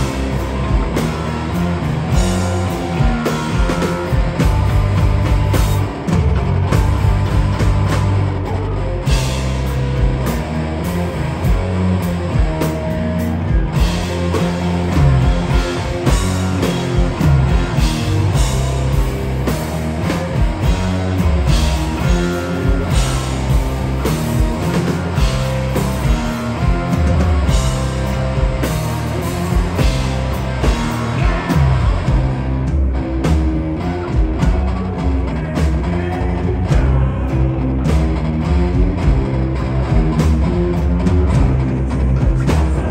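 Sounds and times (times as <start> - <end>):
electric guitars: 0.0 - 42.9.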